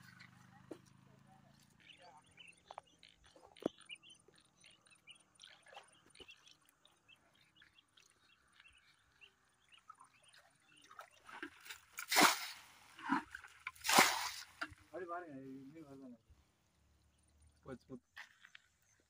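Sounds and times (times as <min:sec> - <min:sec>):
faint birds chirping: 0:00.0 - 0:12.0, 0:14.6 - 0:19.0
loud splash in muddy water: 0:11.3 - 0:14.6.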